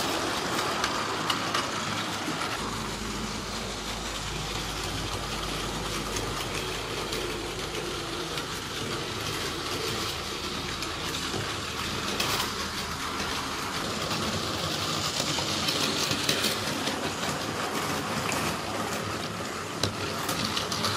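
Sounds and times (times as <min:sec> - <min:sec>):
toy train motors whirring: 0:00.0 - 0:20.9
toy train wheels clicking: 0:00.0 - 0:20.9.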